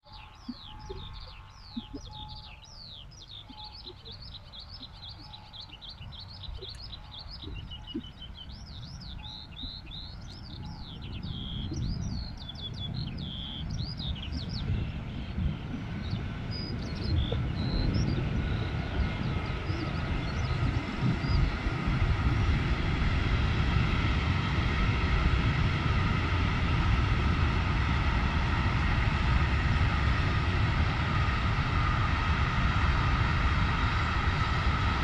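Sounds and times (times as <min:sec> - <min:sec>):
small birds chirping: 0:00.0 - 0:21.9
freight train rumble: 0:00.0 - 0:35.0.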